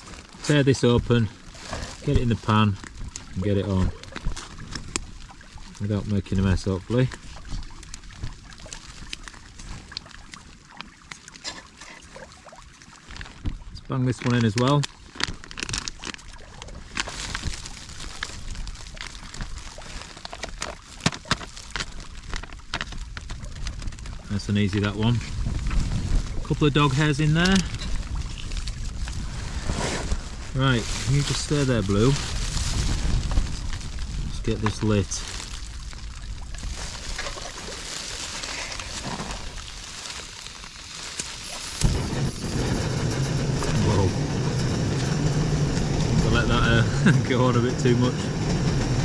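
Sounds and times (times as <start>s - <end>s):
food pouch crinkling: 14.1s - 24.2s, 30.1s - 41.9s
gas igniting with loud whoomp: 29.2s - 33.2s, 41.8s - 49.0s.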